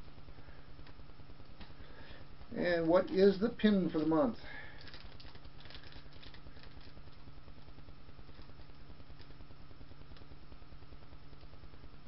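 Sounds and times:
low electrical hum with hiss: 0.0 - 12.0.

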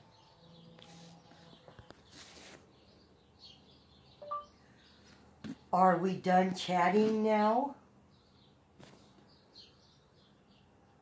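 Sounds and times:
faint birds chirping: 0.0 - 11.0
two-note chirp: 4.2 - 4.5.

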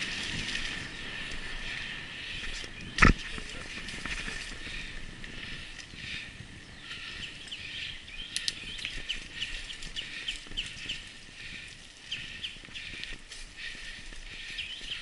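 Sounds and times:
bike rumbling over dirt: 0.0 - 7.8.

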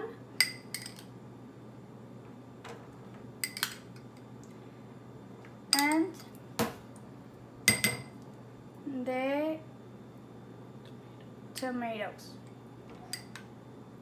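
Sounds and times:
metal spoon clinking on bowls: 0.4 - 1.0, 3.4 - 3.8, 5.7 - 6.0, 7.7 - 8.1.

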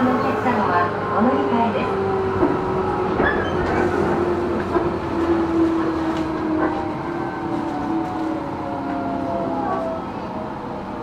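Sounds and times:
train interior rumble: 0.0 - 11.0.

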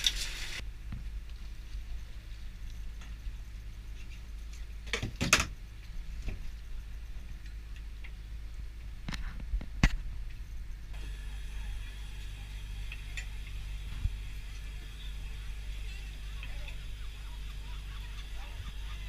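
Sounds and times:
boat engine humming: 11.0 - 19.0.

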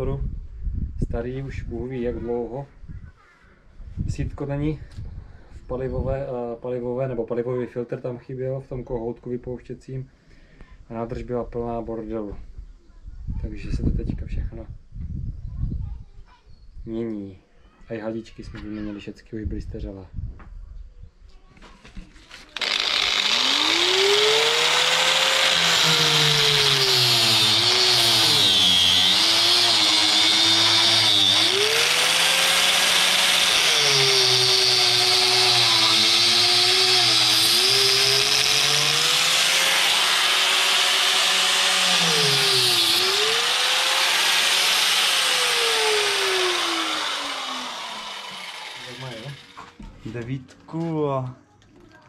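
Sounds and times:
angle grinder on metal: 22.4 - 49.8.

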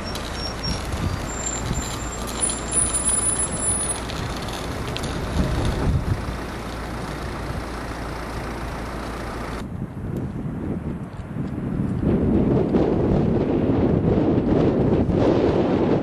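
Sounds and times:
thin high squeal: 0.0 - 4.1
tram rumbling past: 0.0 - 10.2.

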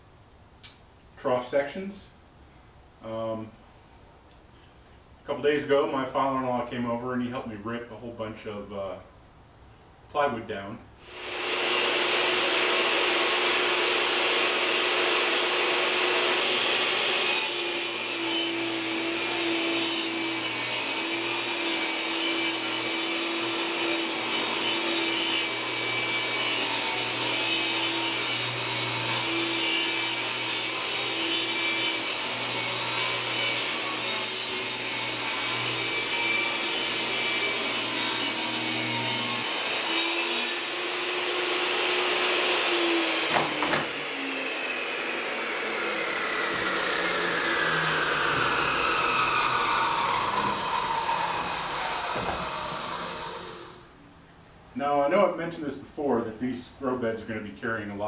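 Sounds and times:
table saw cutting plywood: 11.0 - 53.9.

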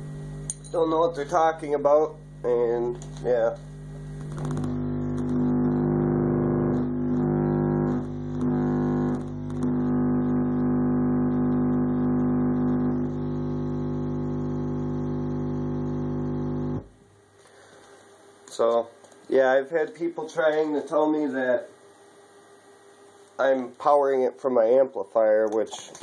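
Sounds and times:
buzzy low bass tone from subwoofer: 0.0 - 17.0.

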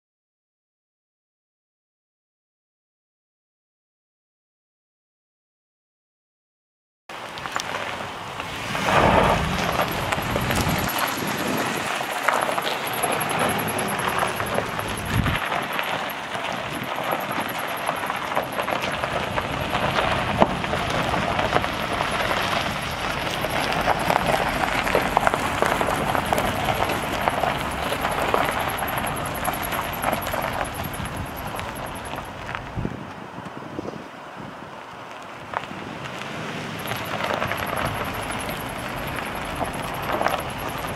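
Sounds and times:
truck engine running: 7.8 - 32.8, 36.8 - 40.9.

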